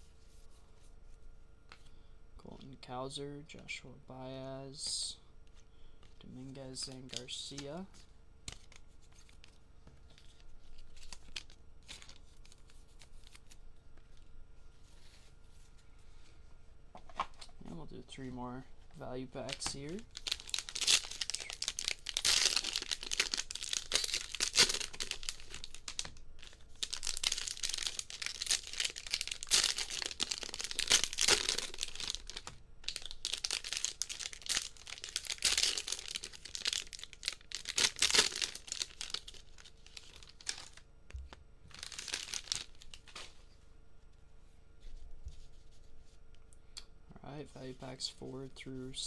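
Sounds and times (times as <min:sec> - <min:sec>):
cellophane wrappers crinkling and tearing: 0:08.5 - 0:14.2, 0:19.2 - 0:43.4.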